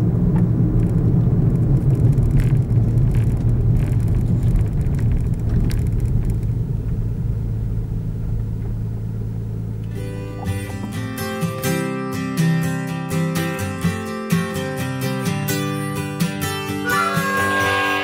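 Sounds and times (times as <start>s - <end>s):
car engine and tyres rumbling: 0.0s - 12.2s.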